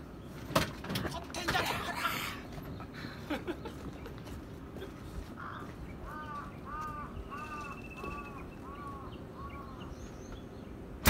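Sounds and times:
crow cawing: 5.4 - 9.9.

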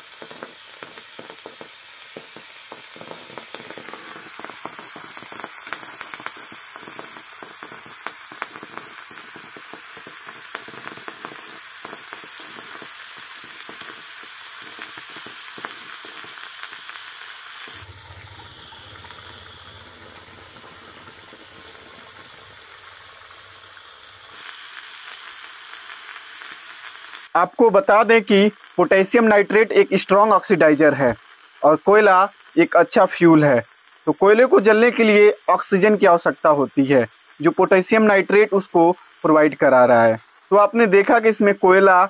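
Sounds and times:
charcoal burning with sizzling hiss: 0.0 - 42.0
crackles and pops: 0.0 - 42.0
low hum: 17.8 - 21.2.

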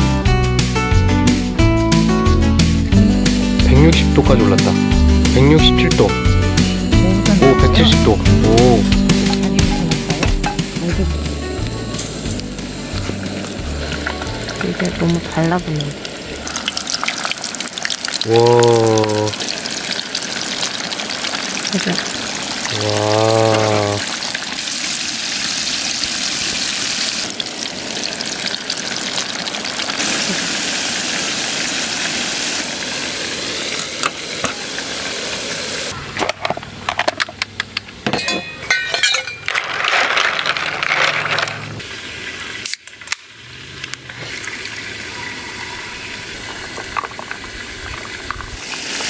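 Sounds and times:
chicken deep-frying in oil: 12.5 - 36.0, 41.8 - 49.0.

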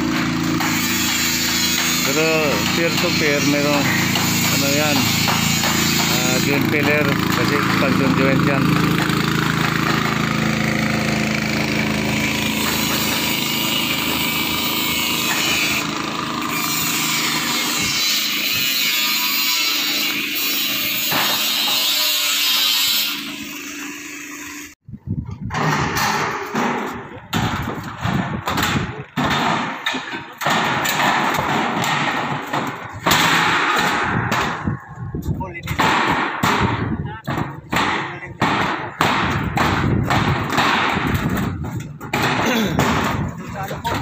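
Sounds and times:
small engine running: 3.9 - 18.5.

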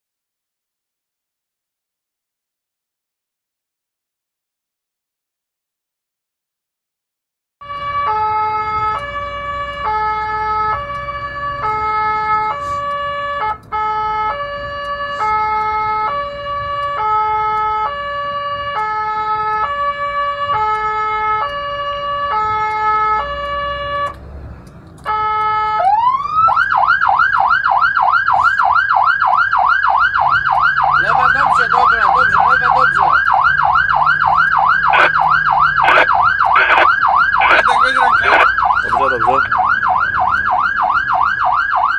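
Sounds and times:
fast yelp siren: 7.6 - 24.2, 25.0 - 41.9
hi-lo electronic siren: 7.6 - 24.2, 25.0 - 41.9.

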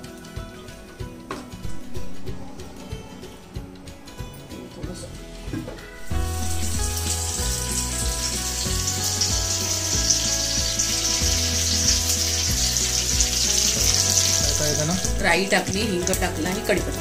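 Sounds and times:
background music with low notes: 0.0 - 17.0
spices sizzling in hot oil: 6.0 - 17.0.

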